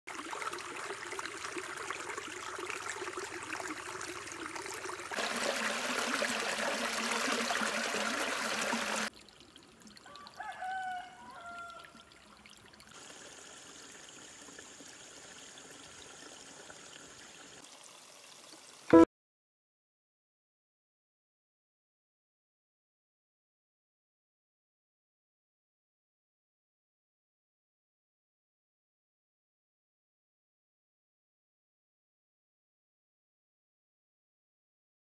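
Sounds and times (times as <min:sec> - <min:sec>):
water splashing down cascade: 0:00.1 - 0:09.1
stream trickling over rocks: 0:00.1 - 0:19.1
rooster crowing: 0:10.0 - 0:12.0.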